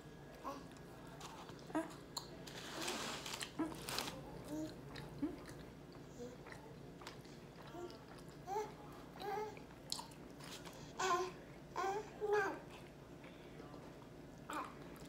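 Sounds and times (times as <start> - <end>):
toddler babbling: 7.7 - 9.6, 11.0 - 12.7.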